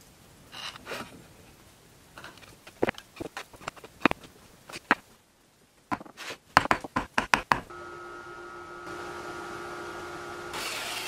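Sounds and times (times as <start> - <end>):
hand tools tapping on wood: 5.9 - 7.7.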